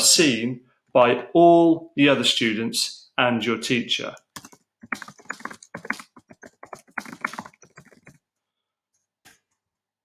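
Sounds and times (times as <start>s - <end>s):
keyboard typing: 4.2s - 8.2s.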